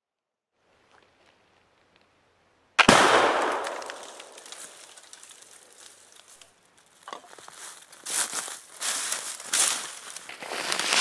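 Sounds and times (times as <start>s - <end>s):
loud gunshot with echo: 2.8s - 4.0s
faint crackles: 3.0s - 11.0s.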